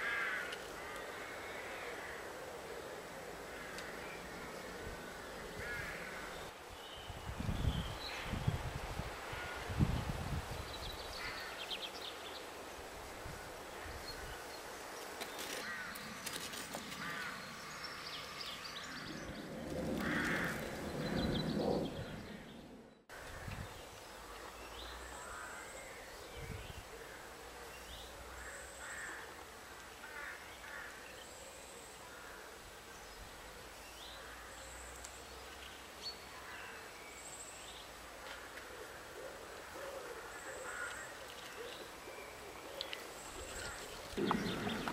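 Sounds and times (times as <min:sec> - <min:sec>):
birds calling: 0:38.4 - 0:44.9.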